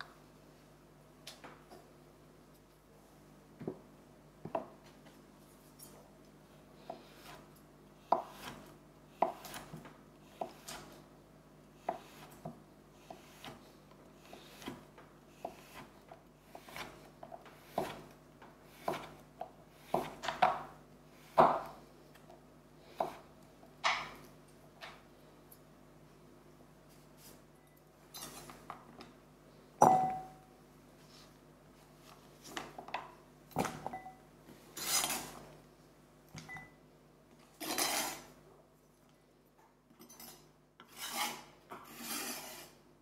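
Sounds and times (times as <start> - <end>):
knife cutting chocolate on board: 8.1 - 11.0, 14.2 - 19.2.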